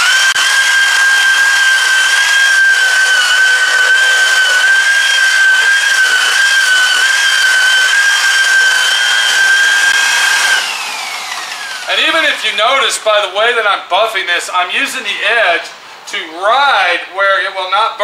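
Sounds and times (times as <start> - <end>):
polishing pad hissing on paint: 0.0 - 12.9
rotary buffer motor whine: 0.0 - 12.9.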